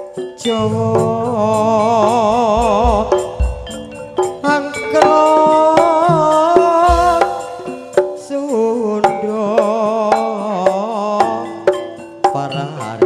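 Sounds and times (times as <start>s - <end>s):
person singing: 0.4s - 11.7s
struck percussion: 0.4s - 12.5s
hand drum strokes: 0.5s - 8.5s.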